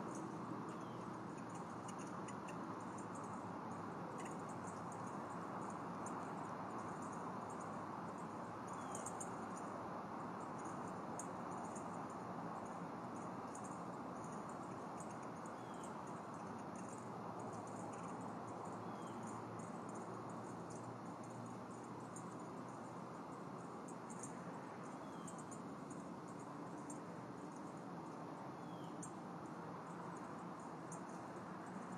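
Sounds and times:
insects chirping: 0.0s - 31.9s.

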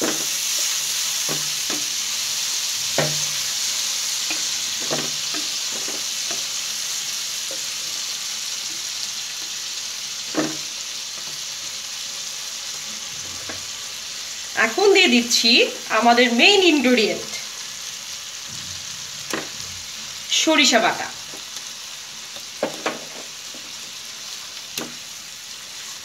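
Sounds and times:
oil sizzling in a pan: 0.0s - 26.0s
spatula knocking against pan: 1.2s - 1.9s, 2.9s - 3.4s, 4.3s - 6.5s.

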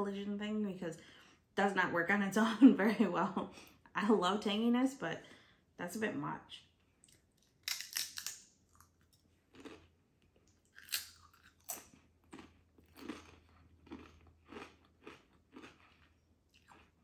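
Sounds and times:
chips crunching being chewed: 7.0s - 17.0s.

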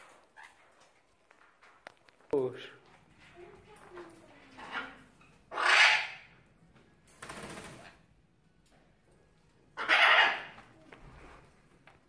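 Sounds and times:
parrots screeching: 4.6s - 6.3s, 9.8s - 10.6s.

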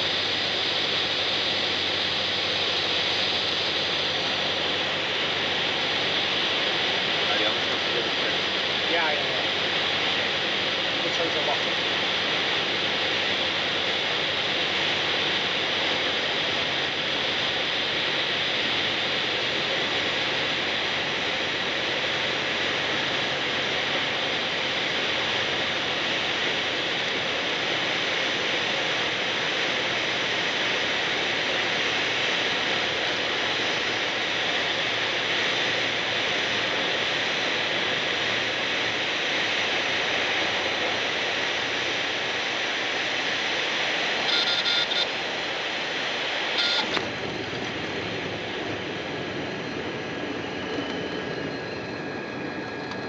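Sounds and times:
aircraft cabin engine drone: 0.0s - 53.0s.

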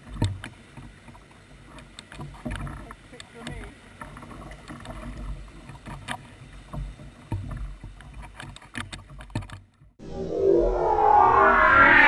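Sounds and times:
paddle knocks and splashes: 0.0s - 10.0s
water rumble: 10.0s - 12.0s.

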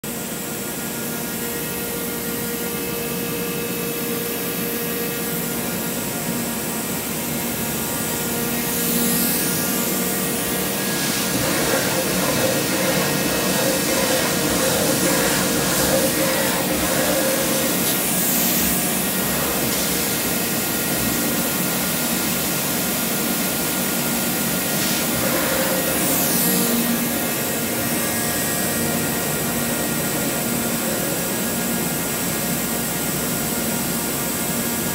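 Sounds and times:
steady hums: 1.6s - 33.2s
disc grinder running: 8.6s - 21.9s, 25.0s - 31.1s.

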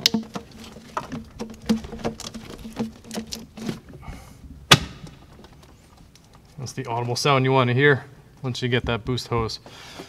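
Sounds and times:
rubber hose squeaking and scraping: 0.0s - 4.3s
hose seating with loud pop: 4.7s - 5.4s.

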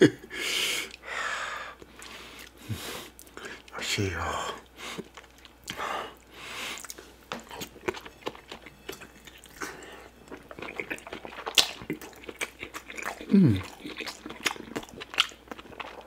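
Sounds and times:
meat being chewed wetly: 4.6s - 16.0s
lip smacks: 5.0s - 16.0s.

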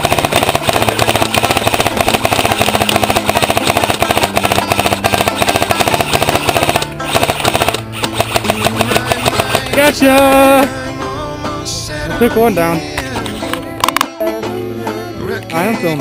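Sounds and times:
airsoft rifle firing full-auto: 0.0s - 9.9s.

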